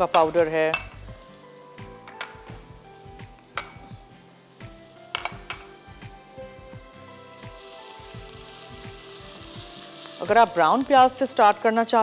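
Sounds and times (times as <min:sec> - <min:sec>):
soft background music: 0:00.0 - 0:12.0
spoons clinking on bowls: 0:00.1 - 0:01.1, 0:05.1 - 0:05.7.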